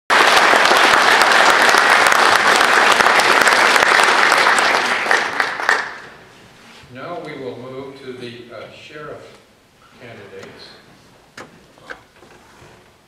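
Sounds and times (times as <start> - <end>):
audience applauding: 0.1 - 6.2.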